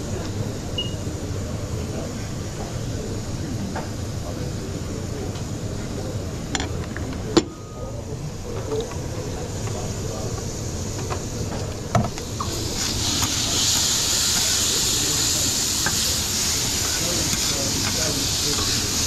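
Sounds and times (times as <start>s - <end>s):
food sizzling in a pan: 12.2s - 19.0s.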